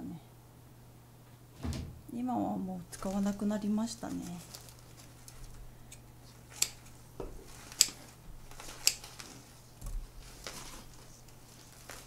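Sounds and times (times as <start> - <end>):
scissors snipping: 6.5 - 6.9, 7.7 - 9.2.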